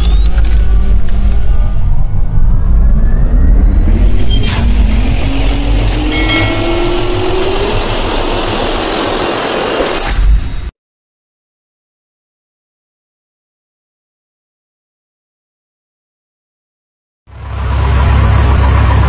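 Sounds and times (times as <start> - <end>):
jet engine spooling up: 0.0 - 10.7.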